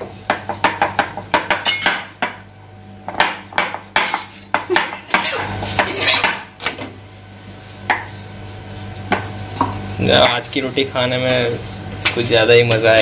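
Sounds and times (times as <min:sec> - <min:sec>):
spatula scraping a griddle pan: 0:04.0 - 0:06.5.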